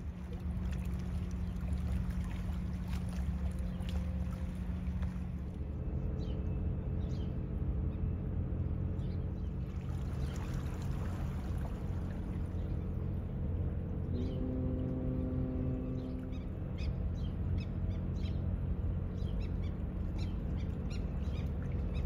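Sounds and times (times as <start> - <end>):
water wash: 0.0 - 5.5, 9.7 - 12.7
boat engine drone: 0.0 - 22.0.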